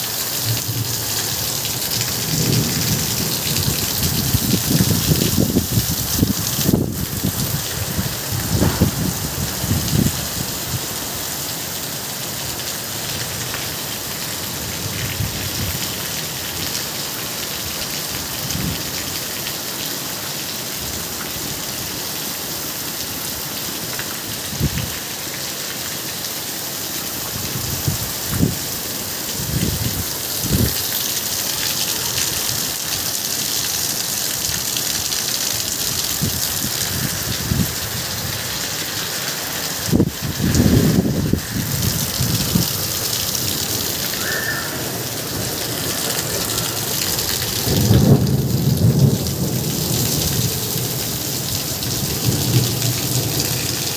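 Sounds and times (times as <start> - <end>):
heavy rain falling: 0.0 - 53.9
low thumps: 8.4 - 9.4.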